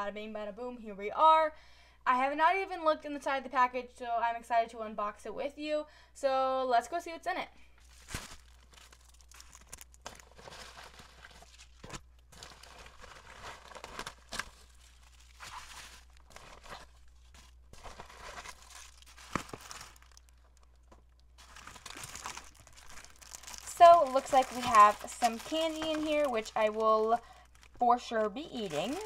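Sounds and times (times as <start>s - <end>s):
plastic wrappers crinkling: 7.8s - 29.0s.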